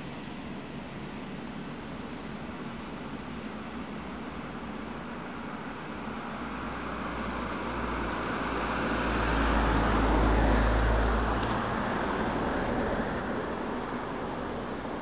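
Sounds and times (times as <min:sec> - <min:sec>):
vehicle passing by: 0:07.2 - 0:14.0.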